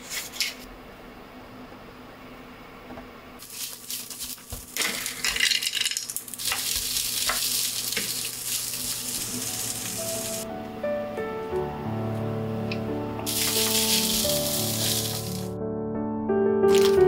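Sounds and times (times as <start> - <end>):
rice sizzling in a frying pan: 3.4 - 10.4, 13.3 - 15.5, 16.7 - 17.0.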